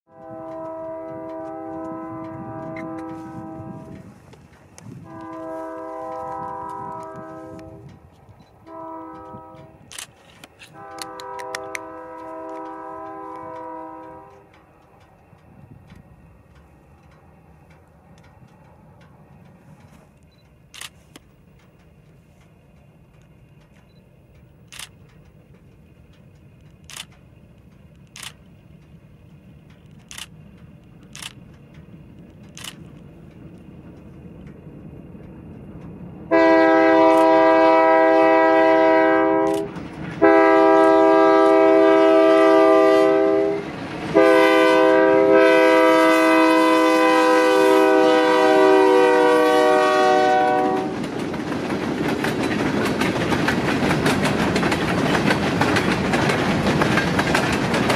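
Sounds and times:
locomotive air horn blasts: 0.1s - 4.2s, 4.8s - 8.0s, 8.6s - 10.0s, 10.6s - 14.6s, 36.3s - 51.0s
freight cars rolling on rails: 0.1s - 57.9s
faint clicks: 3.9s - 36.0s.

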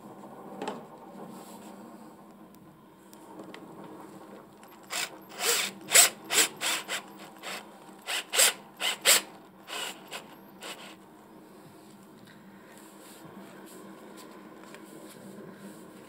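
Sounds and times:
cordless drill whirring: 4.7s - 11.0s.

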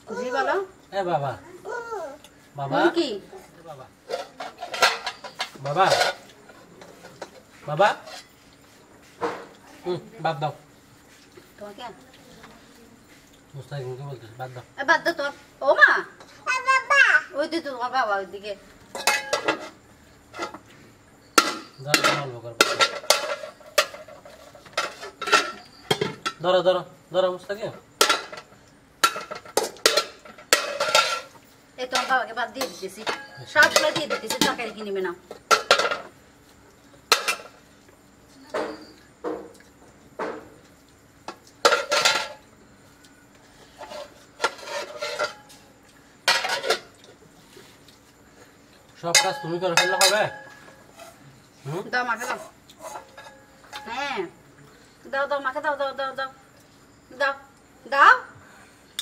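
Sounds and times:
child babbling: 1.4s - 2.2s, 16.5s - 17.3s
metal lids clanking on pots: 4.1s - 8.3s, 18.9s - 20.6s, 21.4s - 26.5s, 28.0s - 36.2s, 37.1s - 37.6s, 41.6s - 42.4s, 43.8s - 45.6s, 46.2s - 46.9s, 49.0s - 51.2s, 52.2s - 54.0s.

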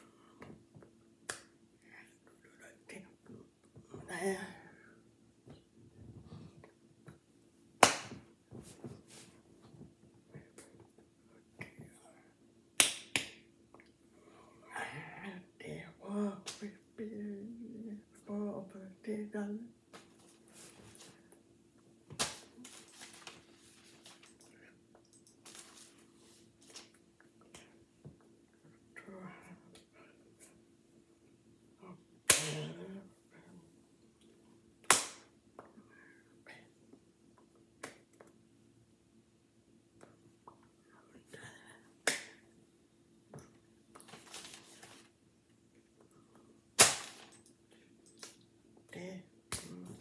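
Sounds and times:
sharp hand slap: 7.8s - 8.2s, 12.8s - 13.4s, 34.9s - 35.3s, 42.0s - 42.4s
hands rustling against clothing: 22.2s - 24.4s, 25.4s - 26.9s.

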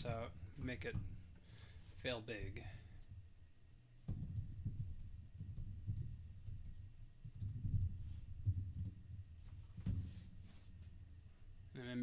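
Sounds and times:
typing on computer keyboard: 4.0s - 9.0s.

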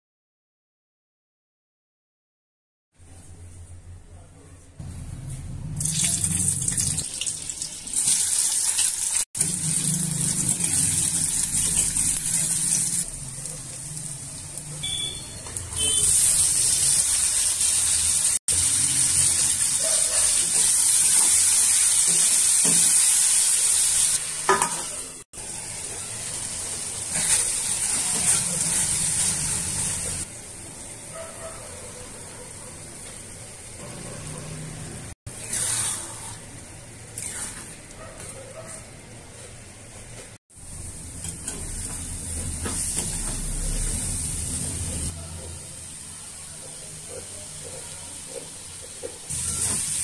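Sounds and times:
vegetables sizzling in hot oil: 5.8s - 14.8s, 15.6s - 31.1s, 40.5s - 45.2s, 48.2s - 50.0s
spatula stirring pan: 35.3s - 40.2s.

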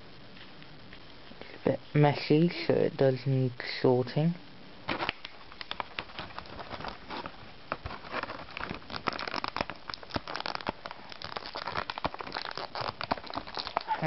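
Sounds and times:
plastic crinkling and clicks: 4.9s - 14.0s.

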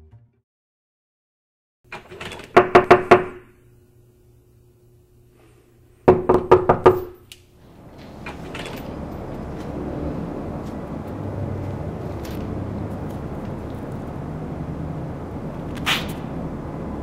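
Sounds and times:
sharp knocks: 6.1s - 7.2s.

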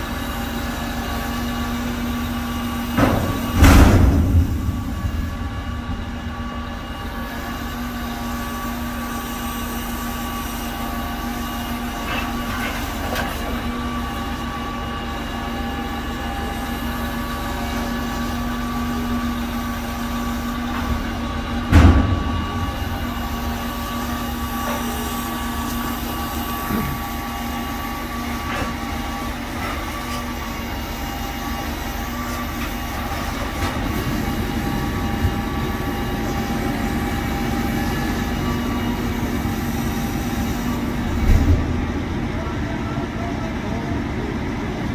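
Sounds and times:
diesel engine running: 0.0s - 44.9s
hydraulic whine: 0.0s - 44.9s
loud thump: 3.0s - 7.0s, 21.6s - 23.4s.

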